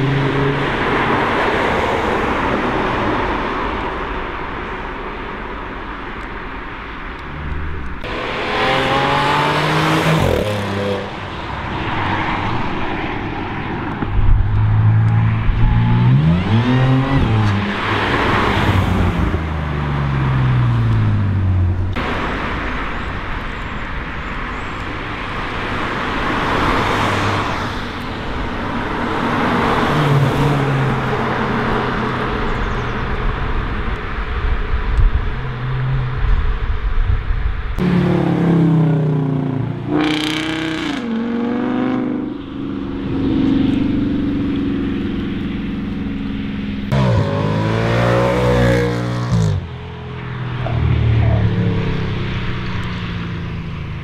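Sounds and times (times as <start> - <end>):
cars driving past accelerating: 7.2 - 22.5, 37.8 - 54.0.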